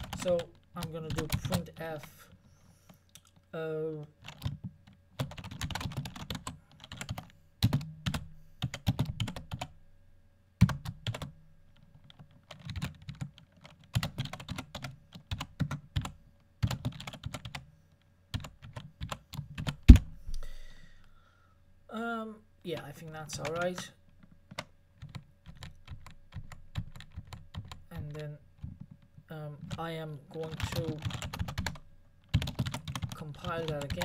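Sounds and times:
typing on computer keyboard: 0:00.0 - 0:00.5, 0:01.1 - 0:01.6, 0:04.2 - 0:09.7, 0:10.6 - 0:17.6, 0:18.3 - 0:20.0, 0:24.2 - 0:29.8, 0:30.4 - 0:34.0.

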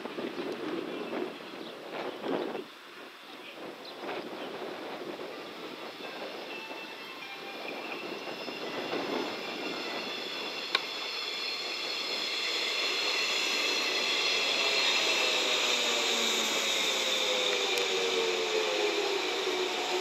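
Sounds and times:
electric train running in: 0:04.7 - 0:20.0
high whining tones: 0:05.6 - 0:20.0
falling lower tone: 0:09.1 - 0:20.0.

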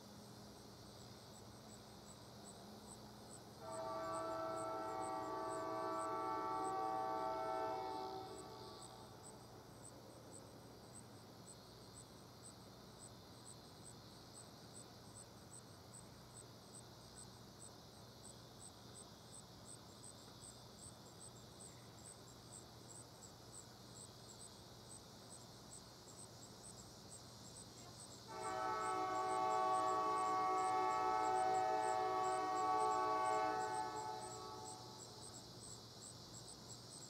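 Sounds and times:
insects chirping: 0:00.0 - 0:37.0
distant locomotive air horn: 0:03.6 - 0:09.1, 0:28.3 - 0:35.0.

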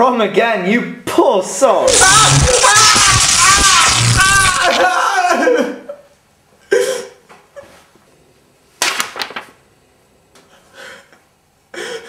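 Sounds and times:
sudden sharp crack: 0:01.9 - 0:04.9.

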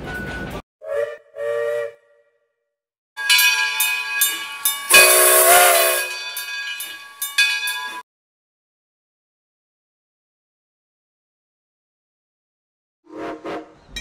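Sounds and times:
steam whistle toots: 0:00.8 - 0:02.3, 0:04.9 - 0:06.2, 0:13.1 - 0:13.8
steam hissing: 0:04.2 - 0:07.4.

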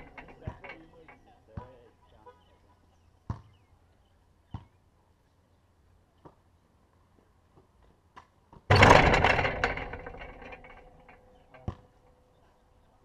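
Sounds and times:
rim and backboard rattling: 0:00.0 - 0:01.3, 0:08.7 - 0:12.3
short knocks: 0:08.7 - 0:12.0.

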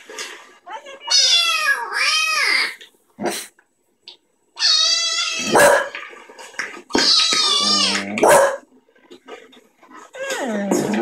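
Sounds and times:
dog yelp: 0:05.4 - 0:06.0, 0:07.6 - 0:08.6.

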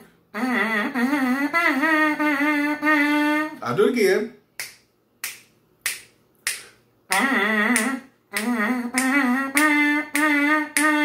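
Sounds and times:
trumpet mouthpiece buzzing: 0:00.3 - 0:03.6, 0:07.1 - 0:11.0.

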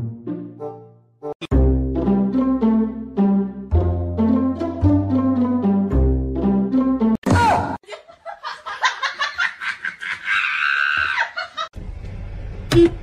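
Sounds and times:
person laughing: 0:07.6 - 0:11.7.

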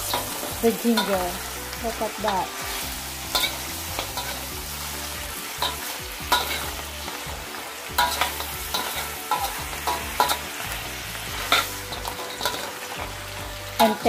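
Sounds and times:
food sizzling in a wok: 0:00.0 - 0:14.0
spatula scraping and knocking pan: 0:07.9 - 0:10.5, 0:11.3 - 0:13.1.

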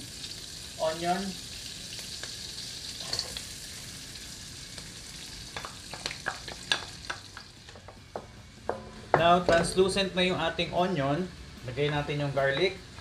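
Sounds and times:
onion sizzling in butter: 0:00.0 - 0:07.8.

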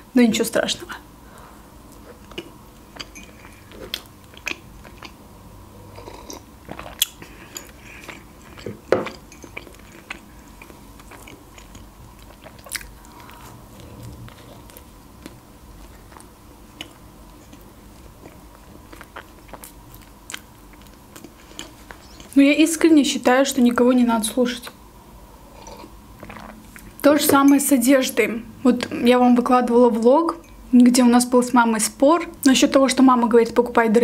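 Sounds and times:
wet chewing: 0:01.9 - 0:05.2, 0:05.9 - 0:22.4, 0:25.6 - 0:27.0.

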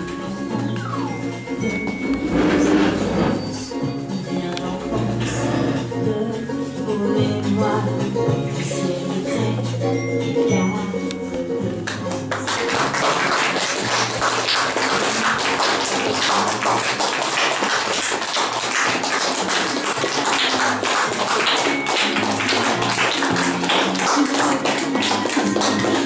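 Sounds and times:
background music with bass line: 0:00.0 - 0:13.0
audience clapping: 0:11.9 - 0:26.0.

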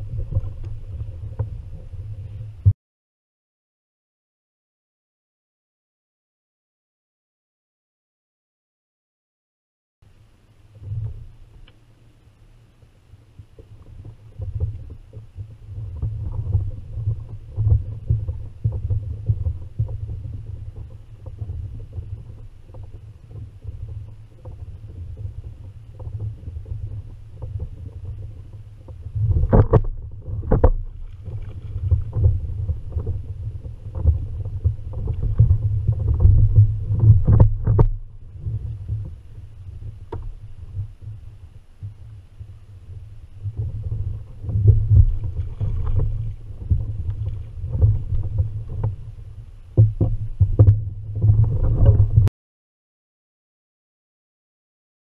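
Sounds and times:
water rumbling against kayak hull: 0:00.0 - 0:02.7, 0:10.0 - 0:52.3.

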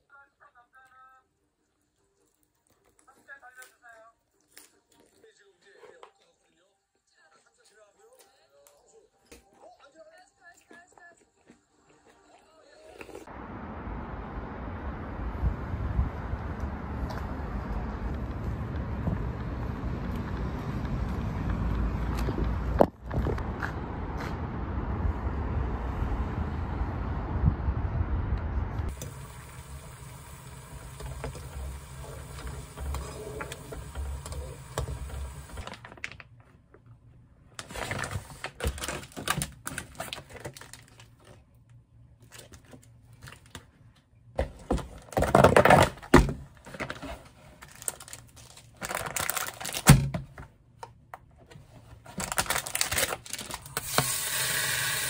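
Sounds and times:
city traffic rumble: 0:13.3 - 0:35.6
food packaging rustling: 0:29.2 - 0:36.6, 0:37.6 - 0:41.4, 0:46.6 - 0:50.0, 0:51.6 - 0:54.2.

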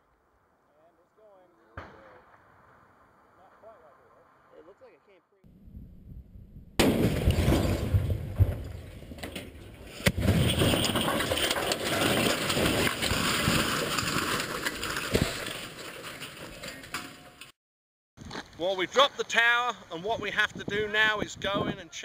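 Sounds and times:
explosive blast: 0:06.8 - 0:09.0
sharp crashes: 0:06.8 - 0:17.4
falling steel and debris: 0:06.8 - 0:17.5
steel tower collapsing: 0:06.8 - 0:17.5.

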